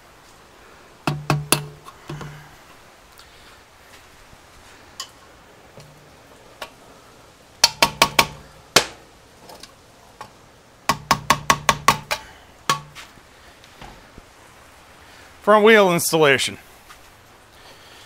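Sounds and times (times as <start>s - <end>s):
sharp ringing taps on metal: 1.1s - 2.3s, 7.6s - 8.4s, 10.9s - 13.0s.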